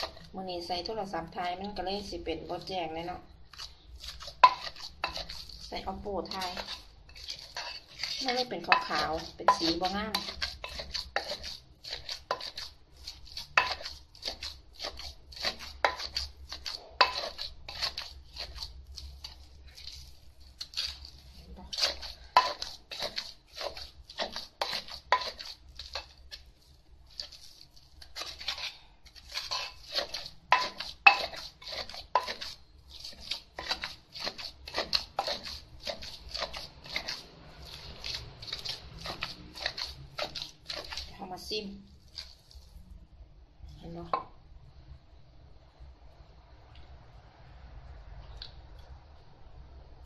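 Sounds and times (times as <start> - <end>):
pestle pounding paste in mortar: 3.5 - 20.0, 21.7 - 26.5, 28.1 - 41.5.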